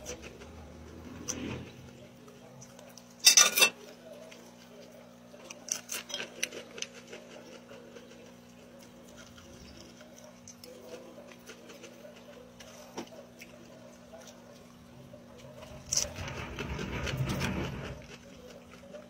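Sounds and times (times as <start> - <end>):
crunchy chewing clicks: 4.2 - 16.4.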